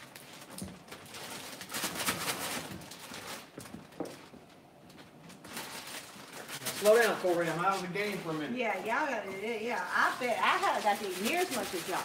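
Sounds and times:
shells cracking and crinkling: 0.0s - 7.5s
paper rustling: 0.0s - 12.0s.

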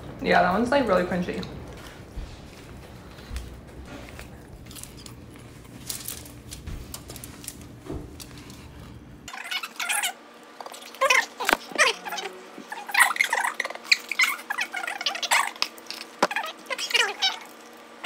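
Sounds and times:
crunchy chewing: 3.1s - 8.9s.

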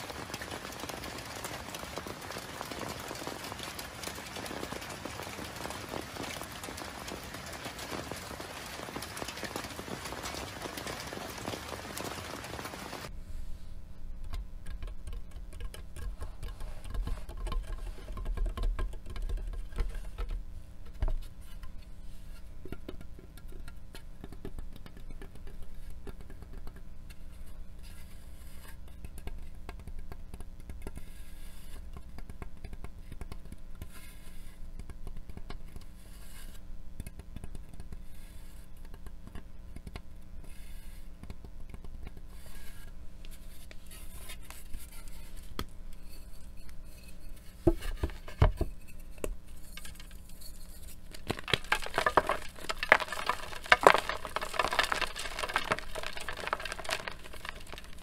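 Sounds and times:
chalk crunching and crumbling: 24.2s - 39.4s, 40.4s - 58.0s
chalk breaking thumps: 49.6s - 58.0s.

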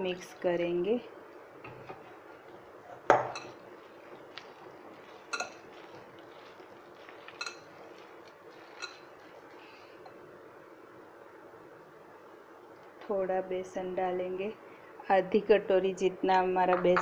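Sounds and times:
wet mixing by hand: 2.0s - 10.0s.

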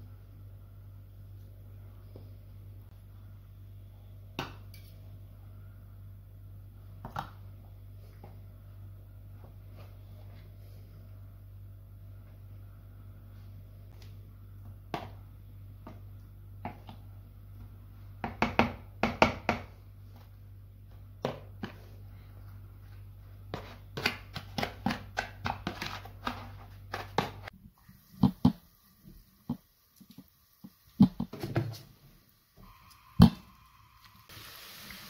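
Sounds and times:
steady low hum: 0.0s - 27.6s.

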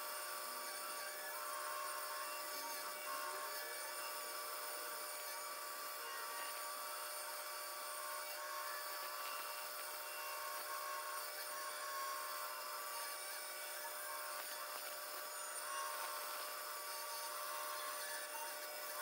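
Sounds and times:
scroll saw cutting wood: 0.0s - 19.0s.

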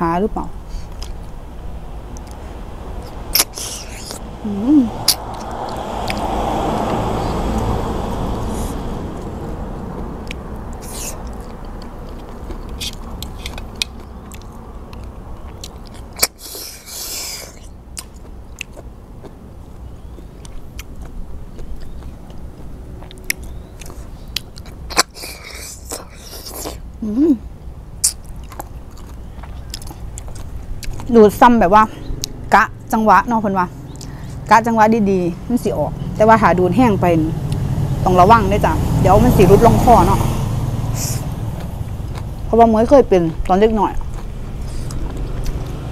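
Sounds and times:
chewing: 0.7s - 1.4s, 2.1s - 2.4s, 3.0s - 4.2s, 5.0s - 7.8s, 8.4s - 26.9s, 28.0s - 31.4s, 32.0s - 32.5s, 33.8s - 34.5s, 40.9s - 42.5s, 43.3s - 45.9s
wet slurping: 3.0s - 4.3s, 4.9s - 7.8s, 10.7s - 14.0s, 16.0s - 18.8s, 44.0s - 45.9s.

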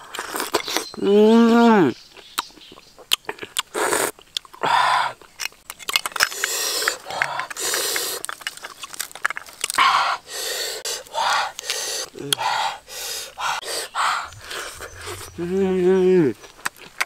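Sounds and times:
small wet mouth clicks: 2.2s - 4.6s, 5.2s - 9.0s, 10.8s - 15.4s
person slurping oyster: 3.3s - 5.2s, 6.1s - 8.9s, 9.6s - 15.7s.

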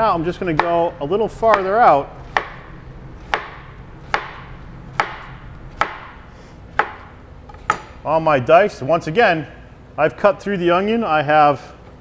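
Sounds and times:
knife slicing onion on cutting board: 1.5s - 2.6s, 3.2s - 7.1s.

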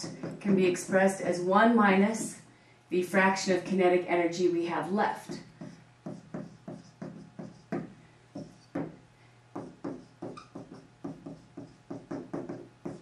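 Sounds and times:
marker writing on whiteboard: 0.0s - 1.2s, 5.2s - 13.0s
faint steady hum: 0.0s - 13.0s.

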